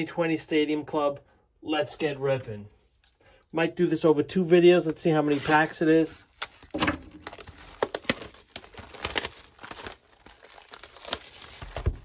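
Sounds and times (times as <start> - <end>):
plastic shrink wrap crinkling and tearing: 5.2 - 12.0.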